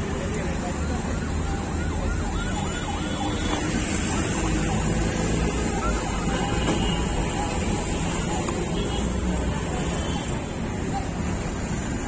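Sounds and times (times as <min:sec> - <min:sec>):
low rumble of street traffic: 0:00.0 - 0:12.0
siren yelping: 0:00.6 - 0:06.6.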